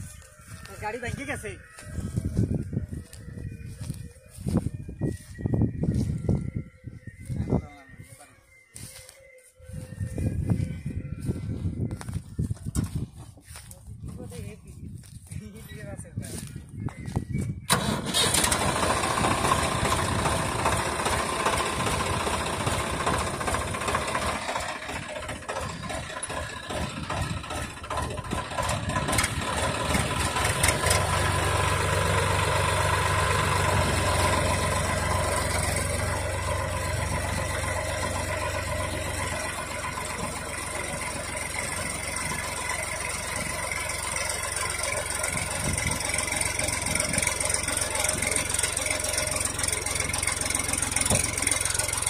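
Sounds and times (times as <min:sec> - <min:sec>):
tractor diesel engine labouring: 0:17.2 - 0:52.0.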